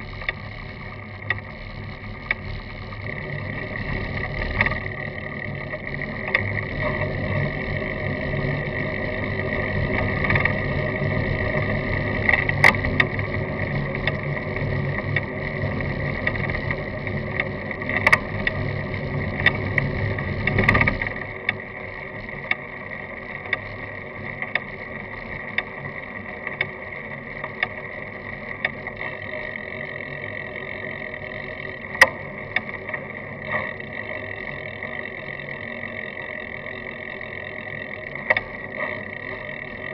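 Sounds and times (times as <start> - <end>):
high-pitched buzz: 0.0 - 22.4
bicycle road and wind noise: 0.0 - 39.9
sharp clicks: 38.2 - 39.9.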